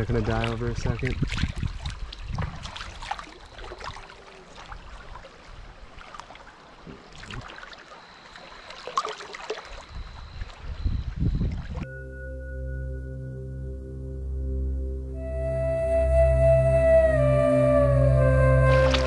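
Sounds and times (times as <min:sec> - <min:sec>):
river water sloshing: 0:00.0 - 0:11.9, 0:18.3 - 0:19.0.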